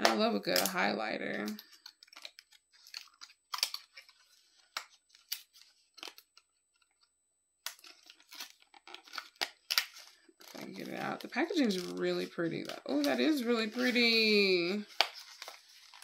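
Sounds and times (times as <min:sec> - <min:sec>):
packaging crackling: 0:01.4 - 0:06.8, 0:07.7 - 0:13.9
packaging crinkling: 0:01.4 - 0:07.1, 0:07.7 - 0:16.0.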